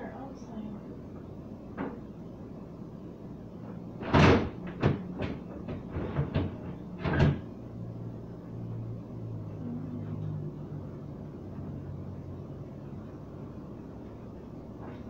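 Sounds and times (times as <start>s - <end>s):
fridge shelves clattering: 4.0s - 7.5s.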